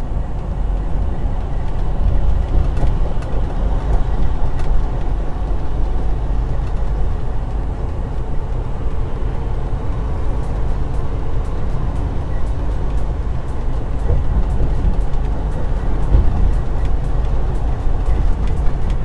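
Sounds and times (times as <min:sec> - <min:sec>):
truck engine and tyres rumbling: 0:00.0 - 0:19.0.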